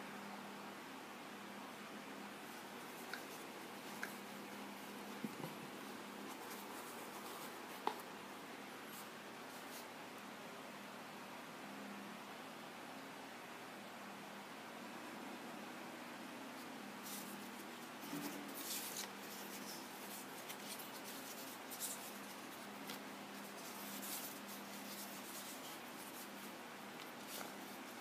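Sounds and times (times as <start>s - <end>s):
faint hum: 0.0s - 28.0s
steady hiss: 0.0s - 28.0s
hands rustling packaging: 2.5s - 8.1s, 17.0s - 28.0s.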